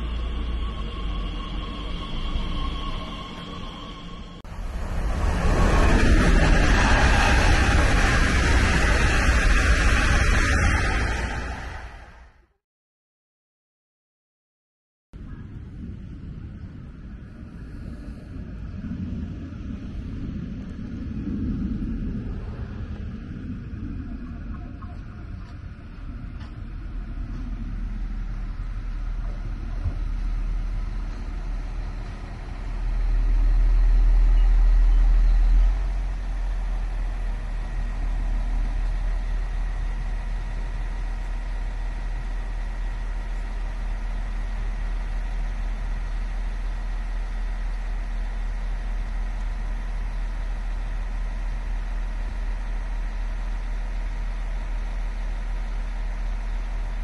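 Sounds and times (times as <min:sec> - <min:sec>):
diesel engines idling: 0:00.0 - 0:10.2, 0:24.2 - 0:57.0
faint high whine: 0:00.0 - 0:12.3, 0:15.2 - 0:57.0
train rumbling into platform: 0:00.0 - 0:12.5, 0:15.2 - 0:57.0.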